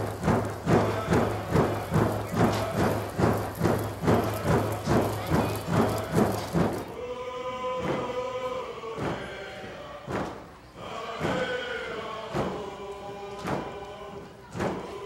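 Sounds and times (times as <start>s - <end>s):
men singing in unison: 0.0s - 5.0s, 5.7s - 15.0s
hand drums beating: 0.0s - 6.9s.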